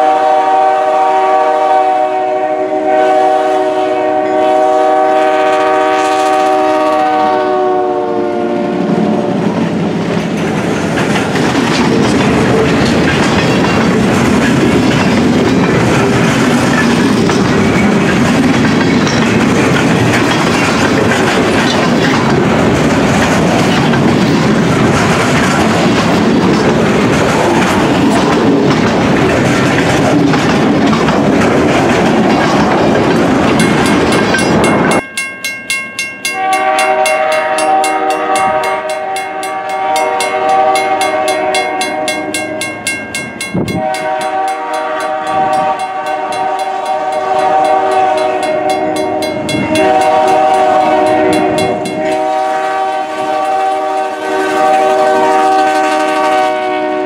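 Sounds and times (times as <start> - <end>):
locomotive air horn blasts: 0.0 - 9.5, 36.3 - 42.3, 43.7 - 57.0
freight cars rolling rumble: 9.4 - 35.0
wheels clacking over rail joints: 9.6 - 53.6.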